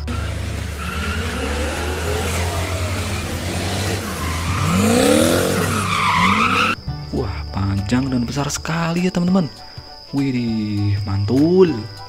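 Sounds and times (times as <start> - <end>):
truck engine revving: 0.0 - 6.8
tyres squealing: 0.0 - 6.8.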